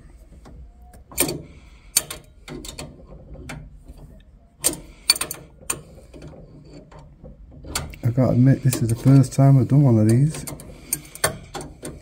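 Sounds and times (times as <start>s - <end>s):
spanner clicking on pipe fitting: 4.6s - 7.0s, 7.6s - 12.0s.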